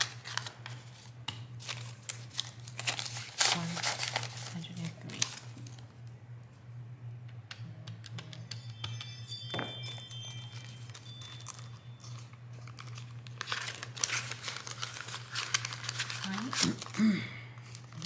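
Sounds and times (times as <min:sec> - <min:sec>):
paper banknotes rustling: 0:00.0 - 0:05.8, 0:10.7 - 0:17.0
plastic envelope crinkling: 0:00.0 - 0:05.9, 0:10.0 - 0:18.0.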